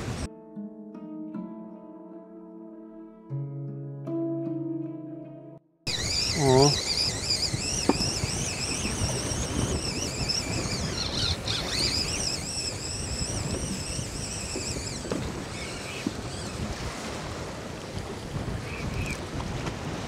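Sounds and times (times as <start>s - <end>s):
water lapping against a boat: 0.0s - 0.3s, 5.9s - 20.0s
wind buffeting microphone: 0.0s - 0.3s, 5.9s - 20.0s
high wavering whine: 5.9s - 16.5s.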